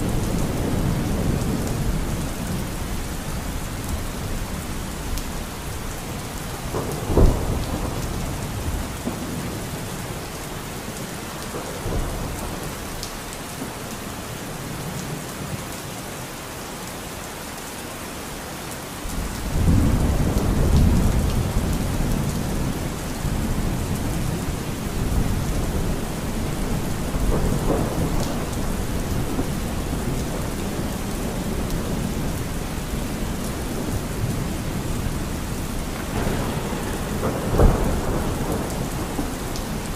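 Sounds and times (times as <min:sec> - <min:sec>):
steady rain: 0:00.0 - 0:39.9
rolling thunder rumble: 0:05.5 - 0:10.2, 0:19.1 - 0:39.9
thunder crack: 0:35.8 - 0:39.9.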